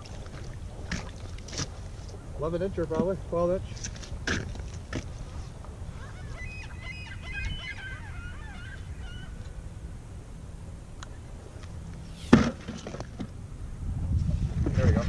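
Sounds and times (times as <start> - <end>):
geese honking: 6.0 - 9.5.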